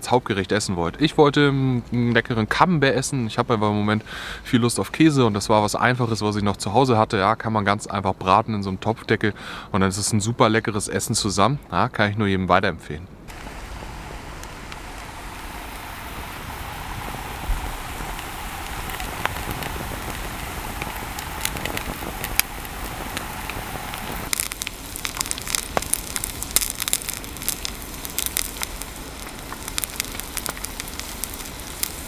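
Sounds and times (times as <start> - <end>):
cheese sizzling in oil: 13.3 - 32.0
oil popping and crackling: 13.3 - 32.0.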